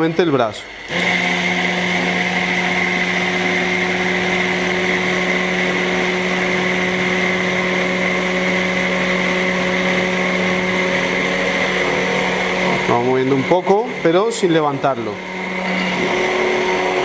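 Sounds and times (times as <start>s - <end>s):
stick blender motor humming: 0.0s - 17.0s.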